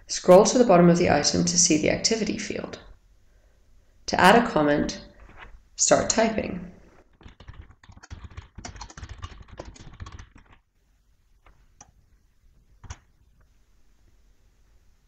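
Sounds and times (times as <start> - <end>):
typing on computer keyboard: 7.0 - 10.6, 12.8 - 13.1.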